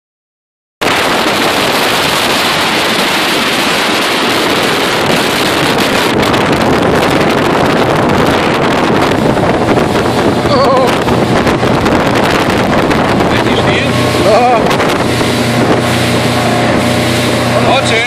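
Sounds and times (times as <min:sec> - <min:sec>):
speedboat running: 0:00.8 - 0:18.0
water rushing past hull: 0:00.8 - 0:18.0
wind on microphone: 0:00.8 - 0:18.0.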